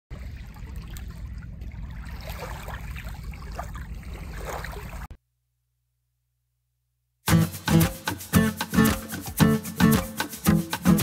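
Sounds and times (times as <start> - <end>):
lake waves lapping: 0.1 - 5.2.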